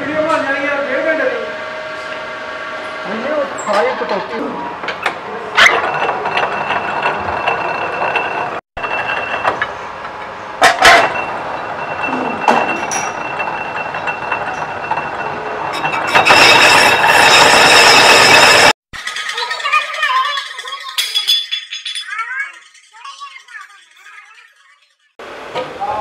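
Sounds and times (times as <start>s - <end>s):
metal lathe cutting: 1.5s - 18.8s.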